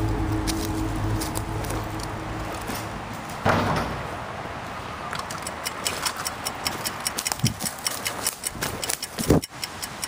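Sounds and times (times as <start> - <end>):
running footsteps on dry leaves: 0.0 - 3.4, 6.6 - 9.4.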